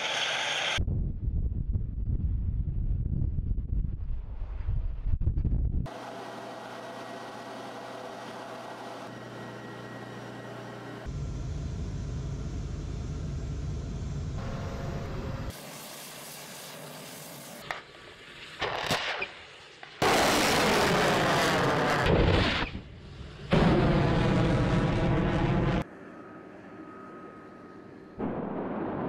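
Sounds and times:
steady hum: 5.9s - 15.5s
rocket motor roaring: 20.0s - 25.9s.

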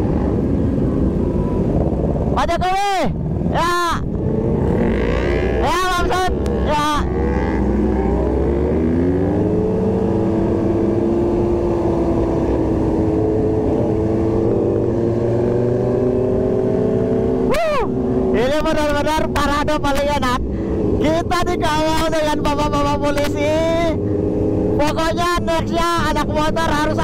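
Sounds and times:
wind rumble on microphone: 0.0s - 27.0s
person shouting: 17.5s - 18.0s.

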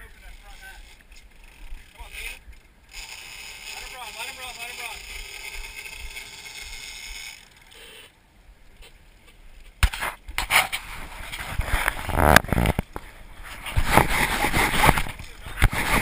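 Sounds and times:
camera handling knocks and scrapes: 13.6s - 16.0s.

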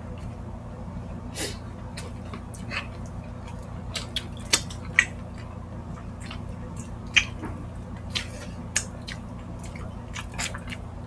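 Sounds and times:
wet chewing and lip smacking: 1.9s - 11.0s.

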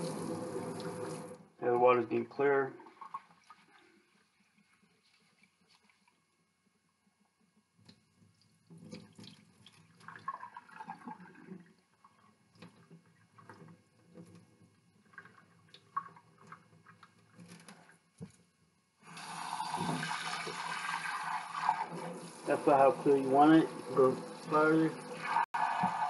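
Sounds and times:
water pouring into sink: 0.0s - 1.4s, 8.7s - 12.8s, 19.1s - 26.0s.

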